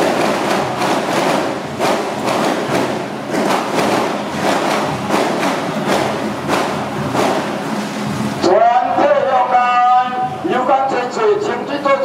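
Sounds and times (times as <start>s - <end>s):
loud crashing thuds: 0.0s - 7.8s
dense steady din: 0.0s - 12.0s.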